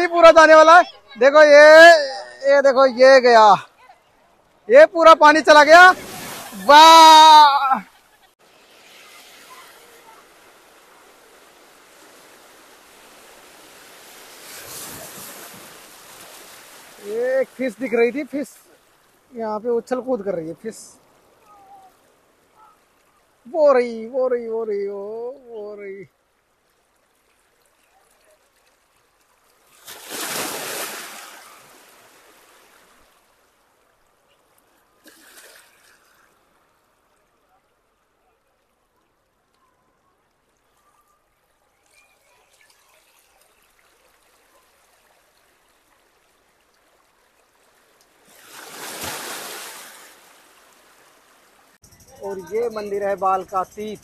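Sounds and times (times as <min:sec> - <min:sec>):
waves breaking over rocks: 0:05.3 - 0:19.4, 0:27.1 - 0:33.6, 0:42.5 - 0:51.8
small water splash: 0:05.7 - 0:19.3, 0:26.4 - 0:37.9, 0:40.3 - 0:51.8.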